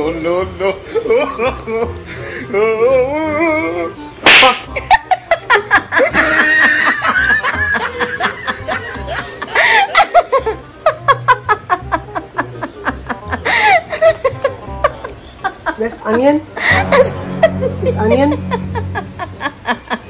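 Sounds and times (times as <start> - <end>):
laughter: 0.9 - 2.0, 4.7 - 17.8, 18.4 - 20.0
quirky comedy music: 4.2 - 5.4, 16.6 - 20.0.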